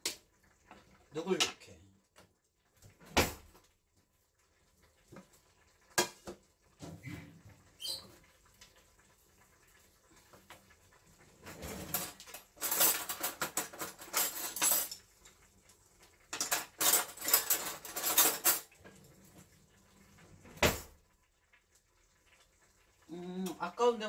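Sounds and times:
cutlery rattling in a drawer: 11.5s - 15.0s, 16.3s - 18.8s.

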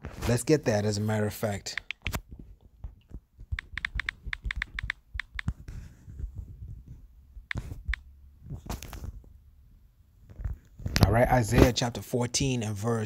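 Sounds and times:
phone keyboard taps: 2.8s - 5.6s, 7.5s - 8.0s.

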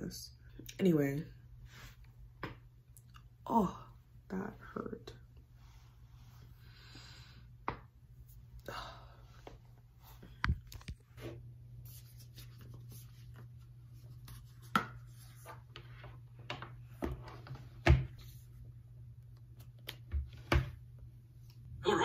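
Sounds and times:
soft rubbing and scratching: 9.8s - 16.1s.

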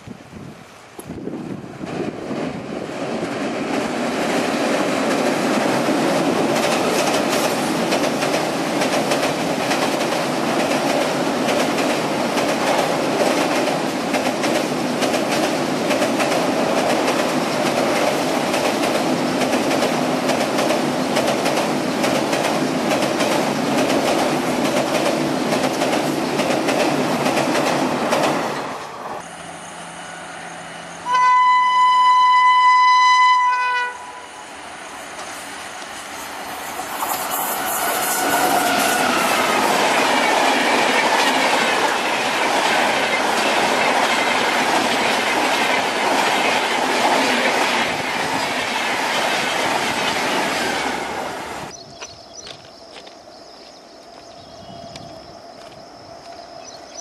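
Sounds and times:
train rumbling over steel bridge: 0.0s - 57.0s
locomotive horn blast: 31.0s - 34.3s.

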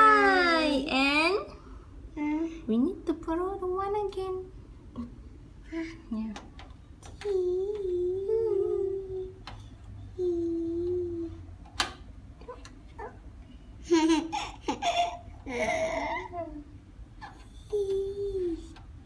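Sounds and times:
toddler humming and babbling: 7.2s - 9.4s, 10.1s - 11.4s, 17.6s - 18.8s
toddler giggling: 13.8s - 16.6s.

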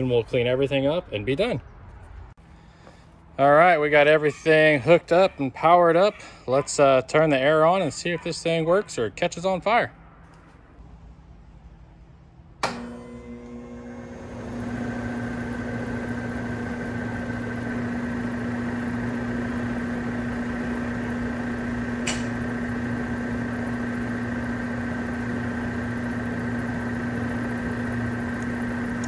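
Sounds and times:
condenser fan humming: 12.6s - 29.0s.

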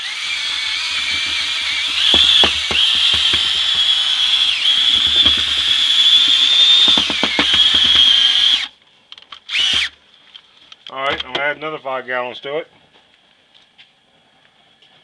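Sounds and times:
drill motor whining: 0.0s - 8.7s, 9.5s - 9.9s.

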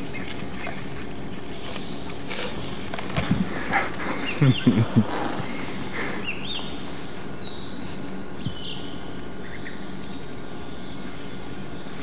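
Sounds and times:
steady low hum: 0.0s - 12.0s
small birds chirping: 4.1s - 12.0s.

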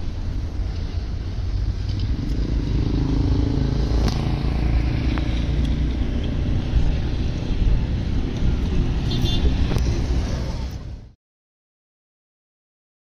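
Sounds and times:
vehicle engine rumbling: 0.0s - 11.2s.

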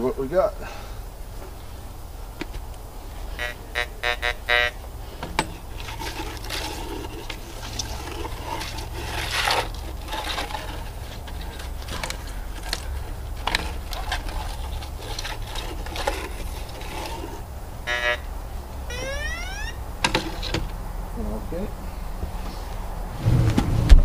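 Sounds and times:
steady low hum: 0.0s - 24.0s
search coil scraping on wood: 2.4s - 18.4s.

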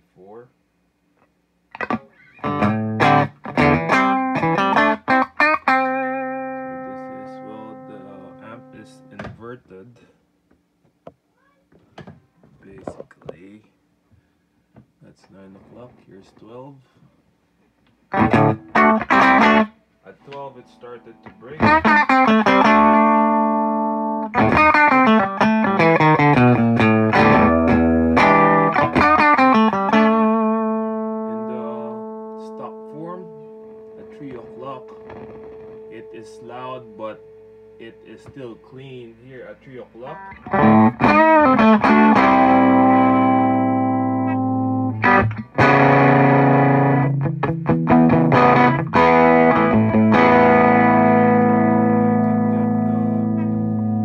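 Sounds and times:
electric guitar chords and notes: 1.7s - 9.2s, 18.1s - 19.8s, 20.8s - 38.5s, 40.0s - 54.0s.

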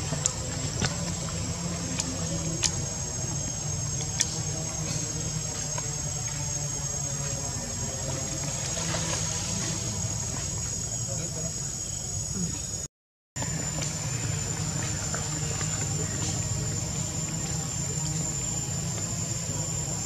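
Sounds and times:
insects droning high-pitched: 0.0s - 20.0s.

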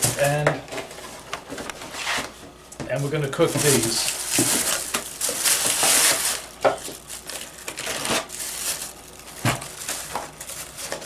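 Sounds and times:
plastic packets crinkling: 3.0s - 11.0s.

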